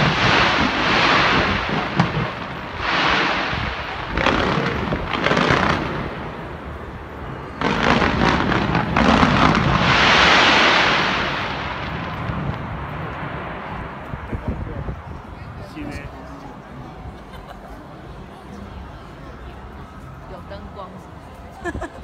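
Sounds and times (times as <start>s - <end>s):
fireworks bangs and crackling: 0.0s - 15.1s.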